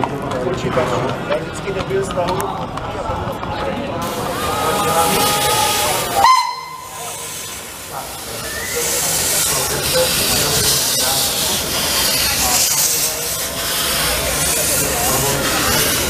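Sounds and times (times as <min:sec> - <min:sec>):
steam hissing: 0:04.0 - 0:16.0.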